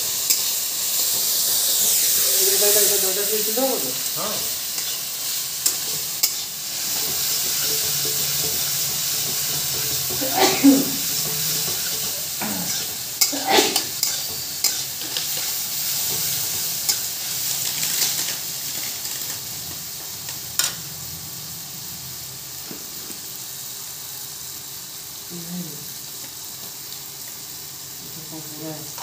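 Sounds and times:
vegetables sizzling in a pan: 0:00.0 - 0:29.0
metal spatula stirring and scraping: 0:04.5 - 0:19.4.

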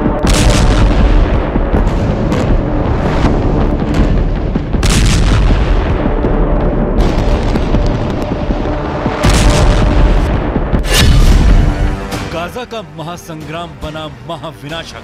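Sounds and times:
explosions booming: 0:00.0 - 0:12.0
dramatic music: 0:00.0 - 0:15.0.

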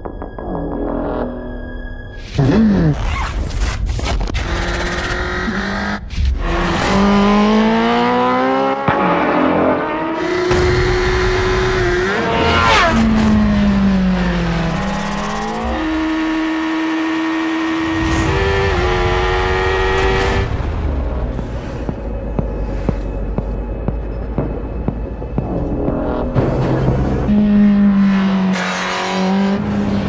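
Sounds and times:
motorcycle engine revving hard: 0:04.4 - 0:20.5.

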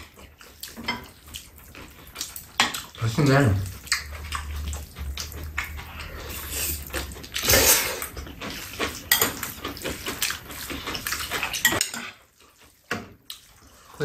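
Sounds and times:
slurping noodles: 0:01.1 - 0:12.2.

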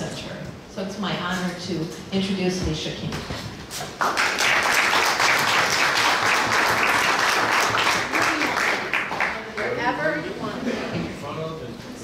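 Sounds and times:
audience applauding: 0:03.9 - 0:09.9.

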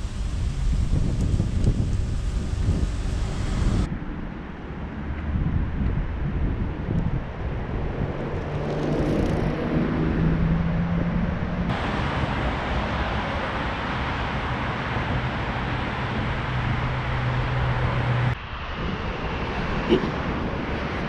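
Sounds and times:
road traffic hum: 0:00.0 - 0:21.0
bicycle rolling past: 0:08.3 - 0:09.8.

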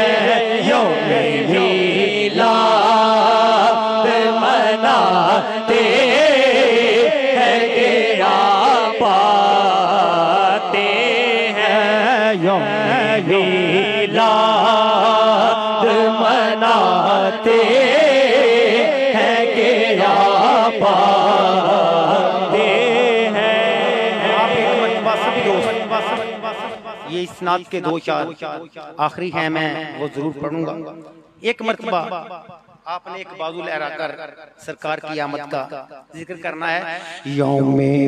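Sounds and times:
men's chorus holding a drone: 0:00.0 - 0:28.6
man singing into a microphone: 0:00.0 - 0:38.0.

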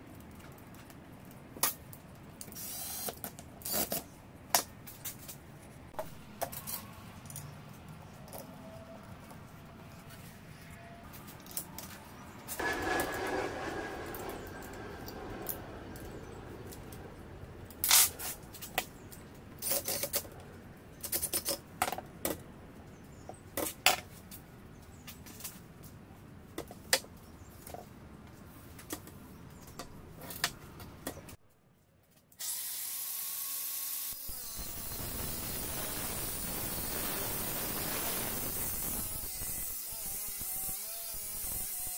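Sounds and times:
steady hiss: 0:34.2 - 0:39.7.

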